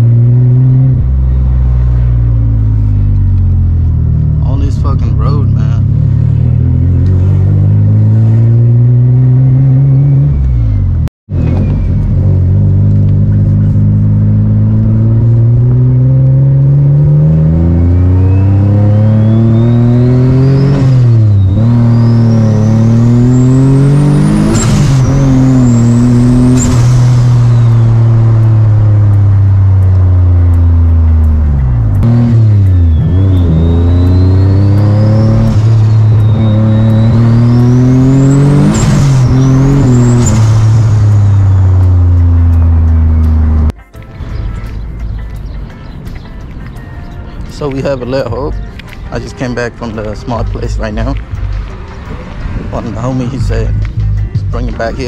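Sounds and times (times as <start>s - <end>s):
car engine accelerating: 0.0s - 46.5s, 47.5s - 55.0s
turbo whistle: 17.7s - 23.7s, 32.6s - 40.6s.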